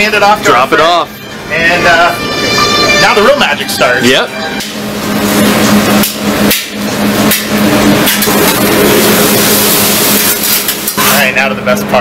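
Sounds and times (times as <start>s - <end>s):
steady hum: 0.0s - 12.0s
food sizzling on a griddle: 8.6s - 11.2s.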